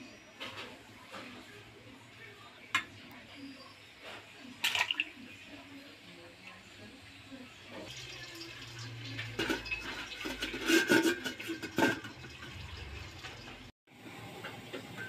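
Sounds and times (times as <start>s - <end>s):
pot lid clanking on rim: 9.4s - 12.4s.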